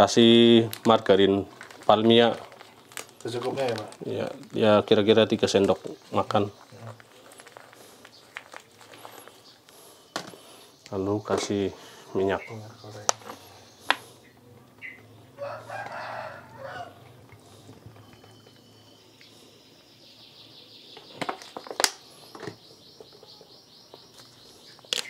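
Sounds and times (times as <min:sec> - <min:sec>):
rooster crowing: 0:15.3 - 0:17.2.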